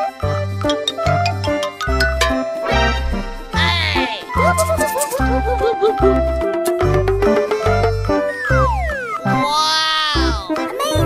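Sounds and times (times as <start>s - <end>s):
upbeat children's music: 0.0s - 11.0s
cartoon sliding sound effects: 4.4s - 5.6s.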